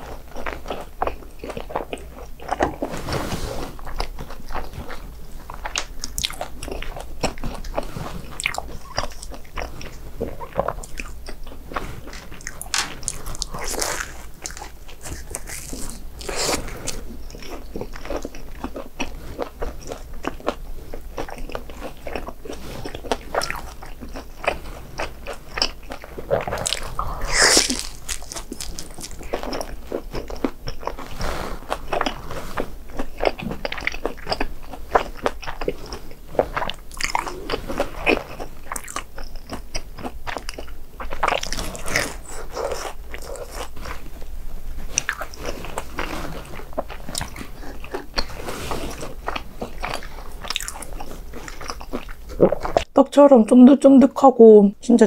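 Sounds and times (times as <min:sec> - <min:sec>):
crunching crispy snacks: 0:03.8 - 0:32.2, 0:32.9 - 0:44.1.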